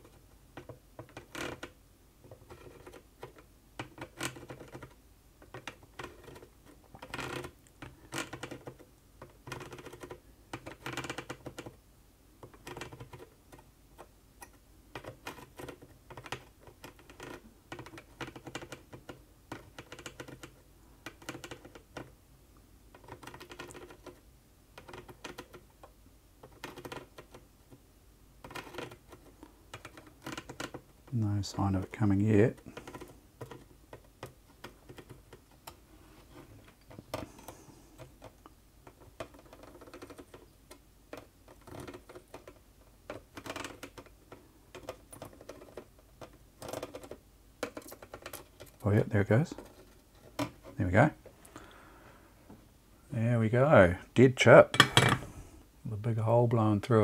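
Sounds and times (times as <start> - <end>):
tools tapping and scraping on pins: 28.4 - 30.9, 54.7 - 55.4.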